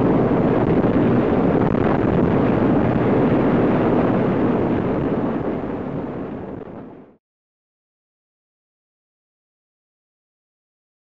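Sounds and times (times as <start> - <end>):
helicopter rushing noise: 0.0 - 6.8
wind buffeting microphone: 0.0 - 7.2.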